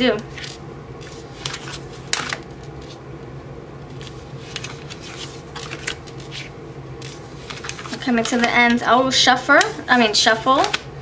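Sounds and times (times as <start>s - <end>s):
faint steady hum: 0.0s - 11.0s
cards snapping and sliding: 0.4s - 3.0s, 4.0s - 8.6s.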